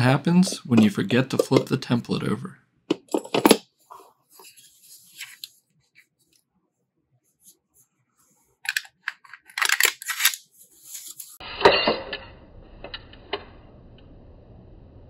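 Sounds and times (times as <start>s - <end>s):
metal scraping and rattling on plastic: 8.6s - 11.4s.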